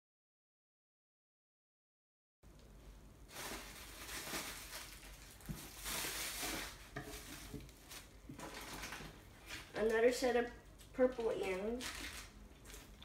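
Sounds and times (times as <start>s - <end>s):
plastic bags crinkling: 3.3s - 9.9s, 11.0s - 13.0s.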